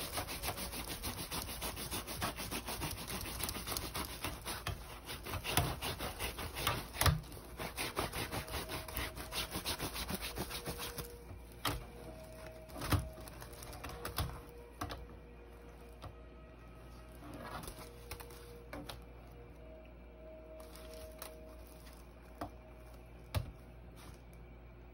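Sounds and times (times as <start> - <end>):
hard rubbing on woven basket: 0.0 - 11.2.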